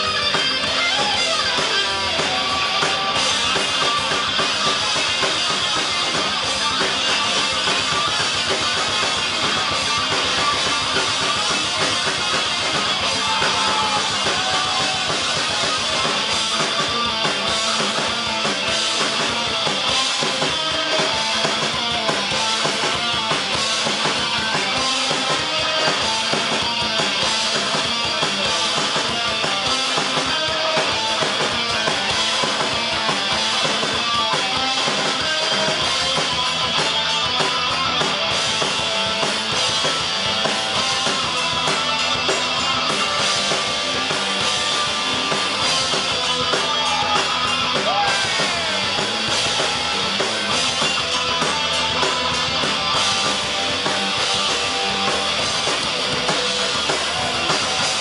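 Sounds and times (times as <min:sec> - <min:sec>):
heavy metal band playing live: 0:00.0 - 0:58.0.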